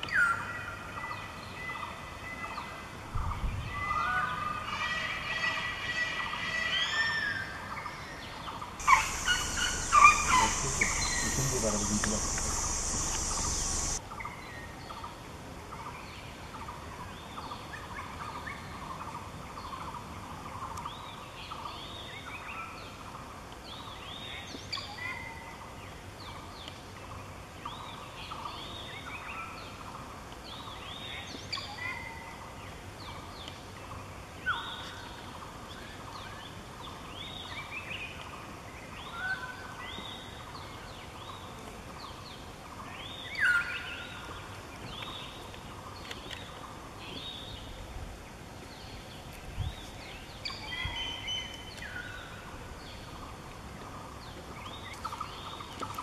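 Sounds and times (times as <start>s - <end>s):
birds chirping: 8.8s - 14.0s
loud bird call: 8.8s - 14.0s.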